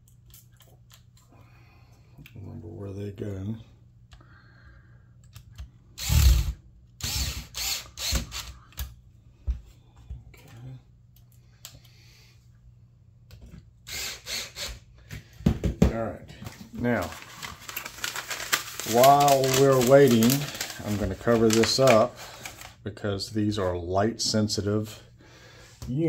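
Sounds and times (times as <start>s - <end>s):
electric screwdriver driving screws: 6.0s - 8.6s, 13.9s - 14.8s.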